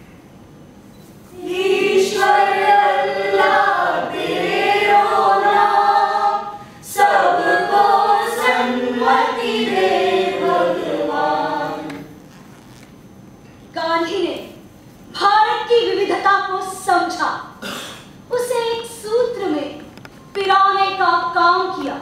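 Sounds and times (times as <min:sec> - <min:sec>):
group singing in unison: 0:01.3 - 0:12.2.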